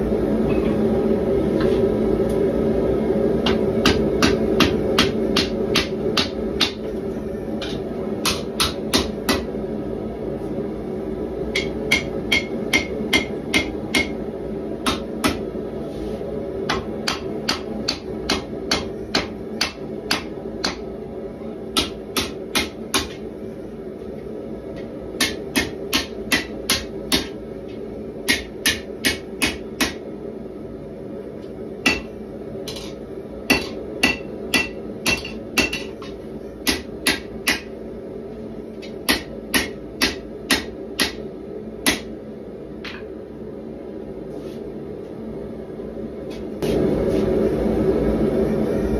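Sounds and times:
gas forge drone: 0:00.0 - 0:48.9
hammer striking steel on anvil: 0:03.5 - 0:06.9, 0:07.6 - 0:09.5, 0:11.5 - 0:14.2, 0:16.6 - 0:20.9, 0:25.2 - 0:27.4, 0:28.3 - 0:30.0, 0:31.8 - 0:37.7, 0:38.8 - 0:42.1.

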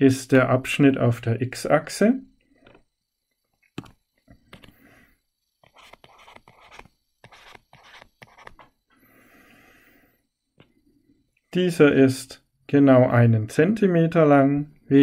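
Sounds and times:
stylus scratching on a screen: 0:05.6 - 0:08.8.

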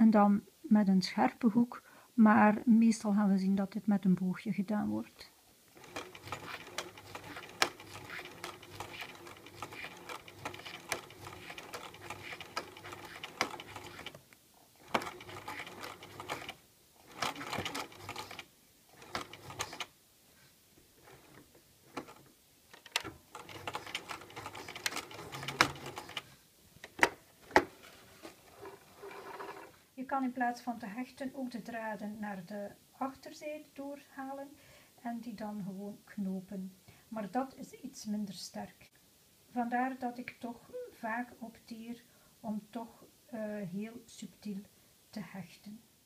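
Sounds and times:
sewing machine stitching: 0:05.8 - 0:14.2, 0:14.8 - 0:19.9, 0:21.0 - 0:26.3, 0:28.6 - 0:29.8.

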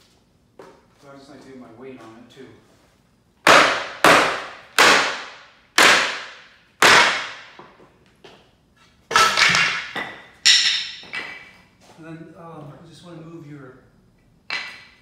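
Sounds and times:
sledgehammer pounding wood: 0:03.4 - 0:07.6.

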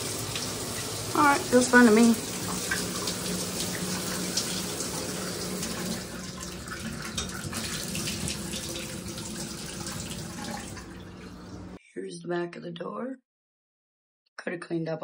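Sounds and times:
tap water splashing into tub: 0:00.0 - 0:11.6.

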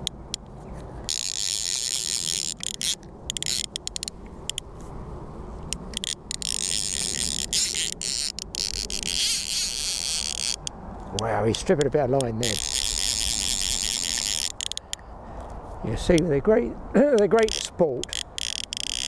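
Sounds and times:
fishing reel ratchet ticking: 0:01.1 - 0:04.6, 0:05.7 - 0:15.0, 0:17.2 - 0:19.0.

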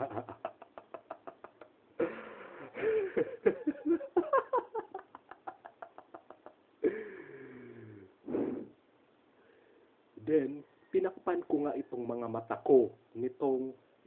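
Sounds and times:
person laughing: 0:00.0 - 0:07.4.

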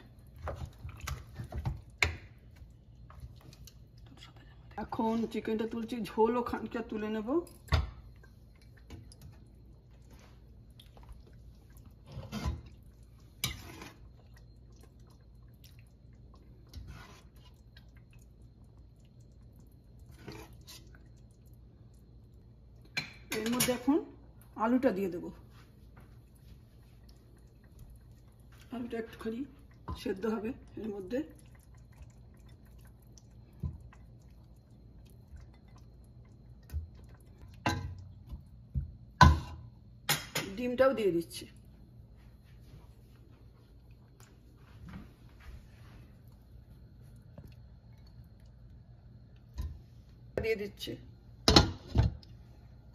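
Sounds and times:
wet scooping and dripping: 0:00.0 - 0:04.2, 0:08.1 - 0:22.4, 0:25.6 - 0:38.8, 0:42.5 - 0:50.3
faint low hum: 0:00.0 - 0:52.9.

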